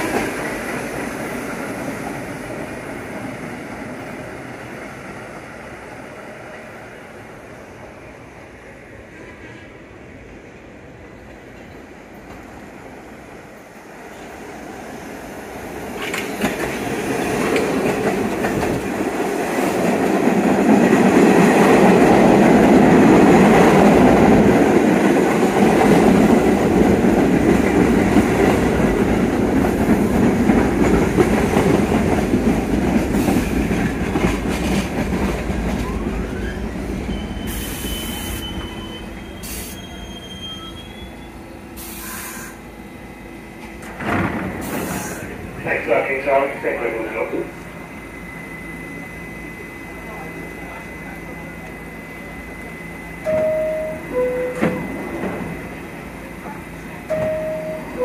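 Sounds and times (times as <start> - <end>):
subway train wheels rumbling: 0.0 - 58.0
train brakes squealing: 35.8 - 42.7, 44.6 - 45.4, 52.2 - 55.6
short hisses: 41.8 - 42.6.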